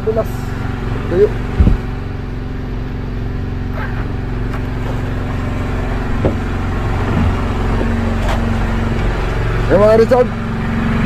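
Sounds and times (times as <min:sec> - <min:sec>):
boat engine droning: 0:00.0 - 0:11.0
faint knocks: 0:06.2 - 0:08.4.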